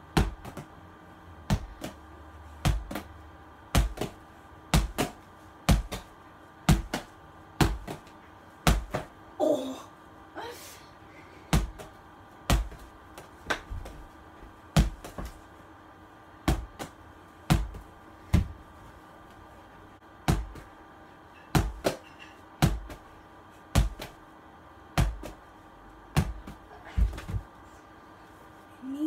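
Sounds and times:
ball thudding against wall: 0:06.7 - 0:09.1, 0:16.4 - 0:18.6, 0:20.2 - 0:20.7, 0:21.5 - 0:23.1.

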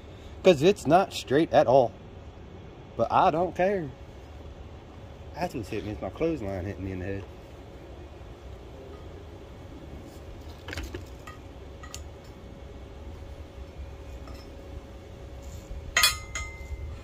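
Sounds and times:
faint steady hum: 0:00.0 - 0:17.0
steel pieces clinking: 0:15.9 - 0:16.9.

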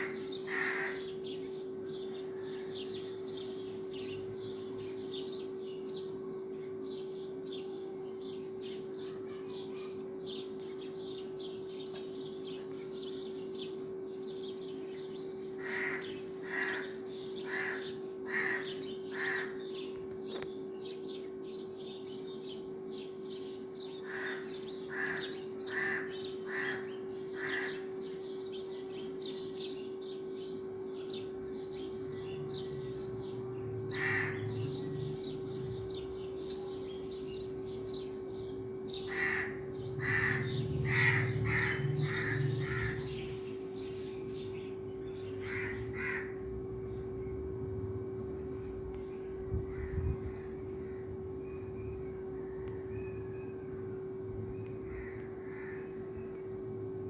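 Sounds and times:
crow cawing: 0:00.0 - 0:01.1, 0:15.6 - 0:19.6, 0:24.0 - 0:27.9, 0:33.9 - 0:34.7, 0:39.0 - 0:43.3, 0:45.4 - 0:46.4, 0:54.9 - 0:56.0
steady low hum: 0:00.0 - 0:57.0.

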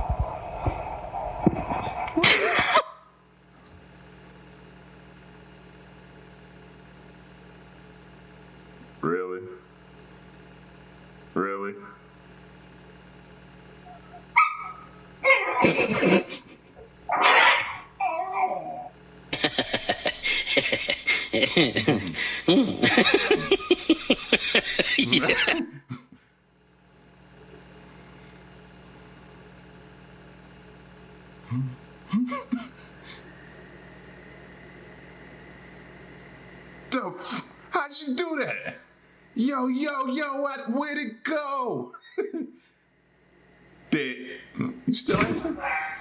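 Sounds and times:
person laughing hard: 0:02.1 - 0:03.0, 0:15.5 - 0:16.8, 0:19.3 - 0:26.1, 0:32.1 - 0:32.8, 0:42.0 - 0:42.6.

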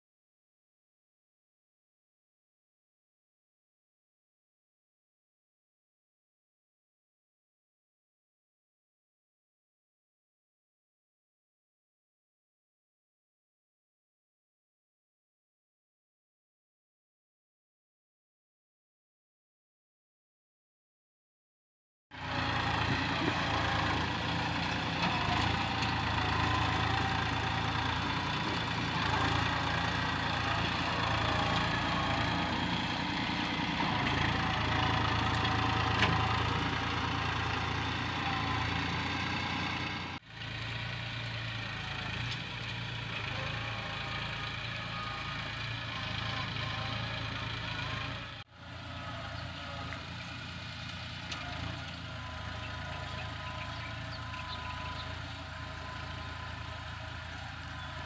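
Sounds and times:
tractor engine running: 0:22.2 - 0:58.0.

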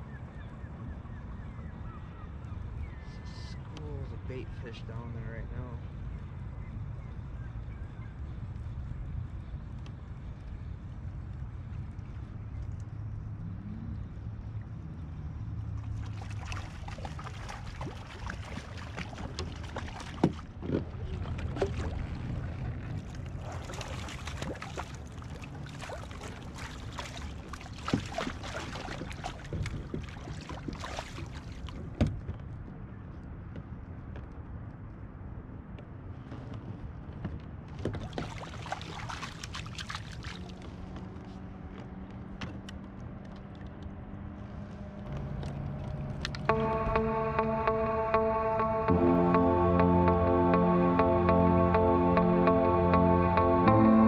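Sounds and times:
water splashing and trickling: 0:15.6 - 0:32.0, 0:37.8 - 0:41.2.

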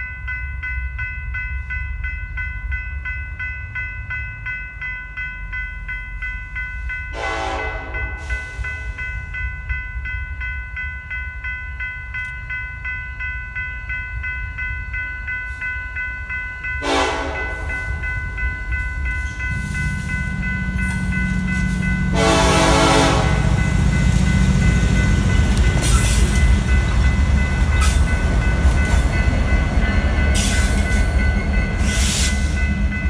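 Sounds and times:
crossing warning bell dinging: 0:00.0 - 0:33.0
locomotive air horn blasts: 0:07.1 - 0:08.3, 0:16.8 - 0:17.7, 0:22.1 - 0:23.6
locomotive engine rumble: 0:16.8 - 0:33.0.

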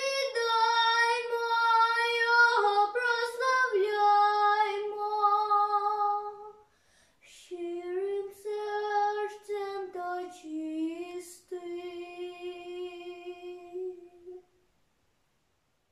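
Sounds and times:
girl singing unaccompanied: 0:00.0 - 0:14.5
girl breathing: 0:06.6 - 0:07.3.

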